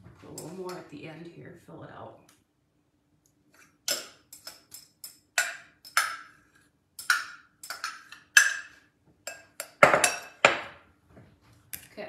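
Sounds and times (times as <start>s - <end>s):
metal spoon clinking on glass bowl: 3.9s - 6.4s, 7.0s - 10.5s.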